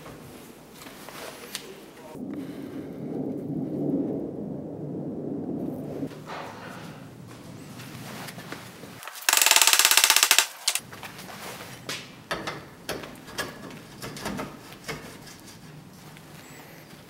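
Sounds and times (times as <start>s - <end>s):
fast rattle of clicks: 9.0s - 10.8s.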